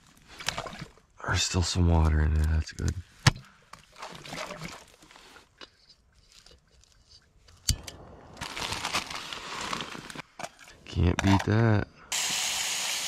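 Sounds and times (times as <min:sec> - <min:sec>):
plastic packaging crinkling: 0:08.3 - 0:10.2.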